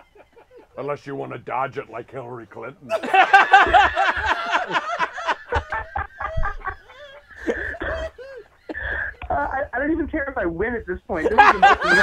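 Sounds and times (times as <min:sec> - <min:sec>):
high-pitched laughter: 0:00.0 - 0:00.8, 0:03.1 - 0:09.5
breathy wheezes: 0:06.2 - 0:09.3.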